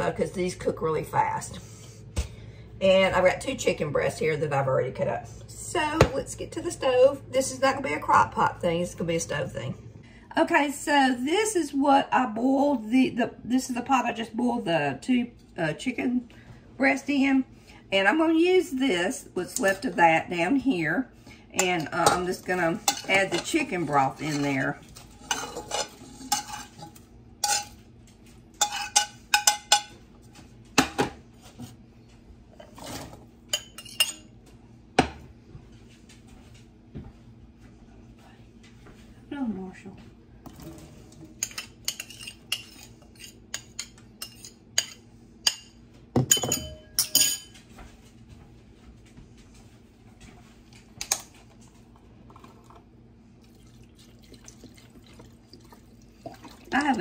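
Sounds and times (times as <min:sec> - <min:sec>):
broth pouring into a pot: 0:53.4 - 0:56.8.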